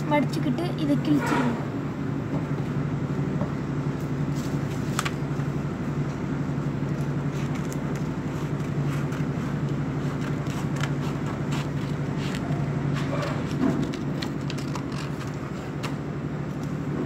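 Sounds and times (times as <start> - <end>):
steady low hum: 0.0 - 17.0
scissors snipping paper: 6.9 - 16.0.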